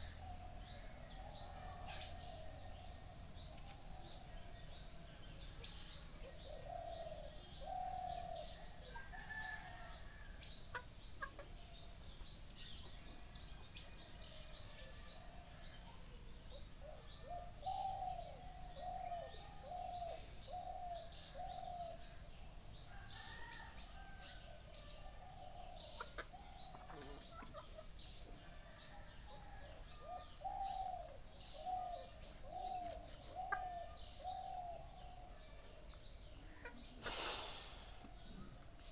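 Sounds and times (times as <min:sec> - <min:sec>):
lower falling bird calls: 0:30.0 - 0:38.9.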